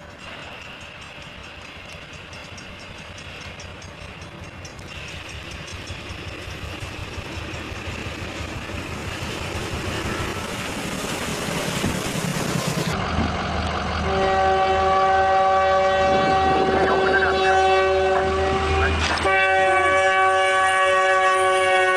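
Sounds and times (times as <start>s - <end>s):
locomotive rumble: 0.0s - 21.9s
train horn chord: 14.0s - 21.9s.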